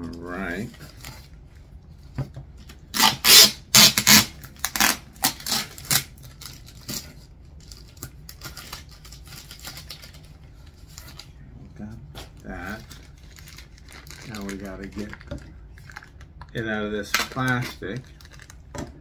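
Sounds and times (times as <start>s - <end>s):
packaging torn open: 2.9s - 11.3s, 12.7s - 16.4s, 17.0s - 18.6s.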